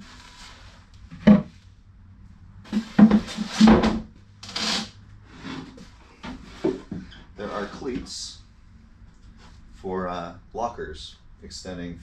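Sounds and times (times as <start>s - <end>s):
wooden boards knocking: 1.2s - 1.5s, 2.7s - 4.0s
wood scraping: 2.7s - 8.2s.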